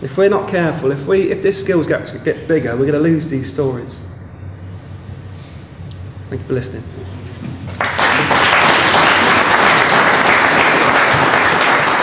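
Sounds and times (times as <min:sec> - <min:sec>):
audience applauding: 0:07.7 - 0:12.0.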